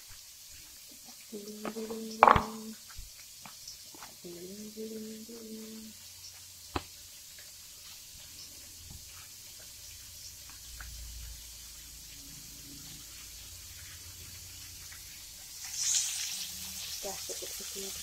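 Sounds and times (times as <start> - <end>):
soft rustling in flour: 0.0 - 18.0.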